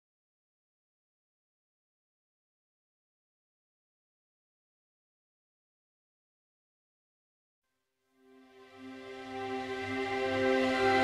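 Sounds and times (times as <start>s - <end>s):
ambient music with held notes: 8.1s - 11.0s.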